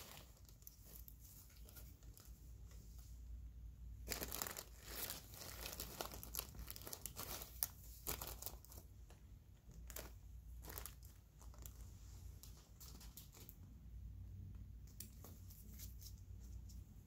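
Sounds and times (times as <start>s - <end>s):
gloved hands crinkling paper drape: 4.0s - 8.9s.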